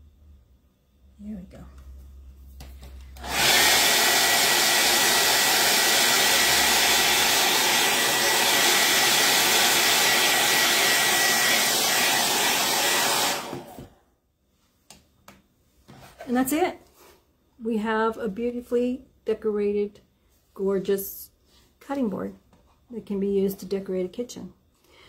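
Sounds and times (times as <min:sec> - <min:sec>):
hot-air dryer blowing: 0:03.2 - 0:14.0.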